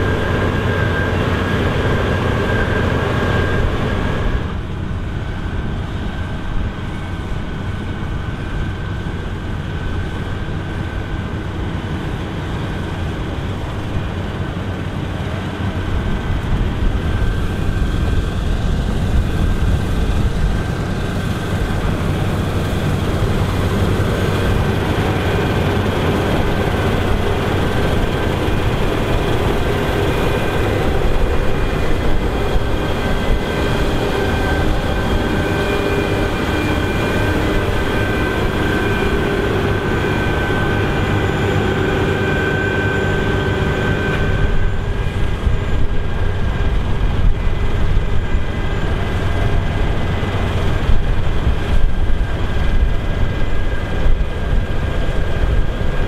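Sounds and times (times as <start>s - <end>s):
combine harvester drone: 0.0s - 56.0s
machinery whine: 0.0s - 56.0s.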